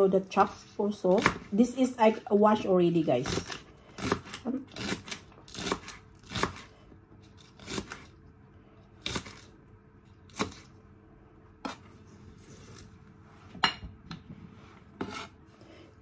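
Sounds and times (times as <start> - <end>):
knife chopping on wooden board: 1.1 - 1.5, 3.2 - 6.7, 15.0 - 15.3.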